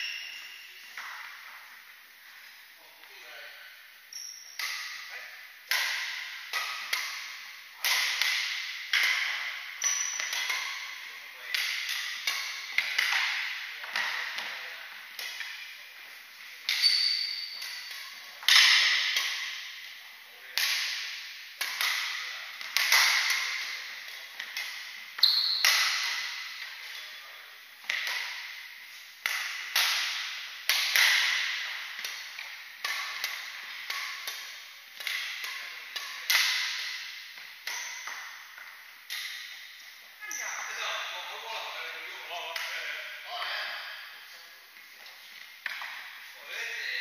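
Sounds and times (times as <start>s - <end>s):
shoe squeaks: 0.0s - 1.0s, 4.1s - 5.0s, 9.8s - 10.3s, 16.7s - 17.9s, 25.2s - 25.8s, 40.2s - 40.9s
rackets hitting shuttlecock: 0.0s - 1.8s, 4.1s - 41.6s, 42.4s - 44.2s, 45.0s - 46.3s.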